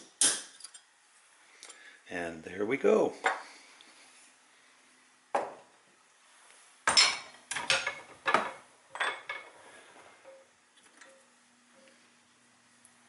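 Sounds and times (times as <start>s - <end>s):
metal tools clanking: 6.9s - 9.6s.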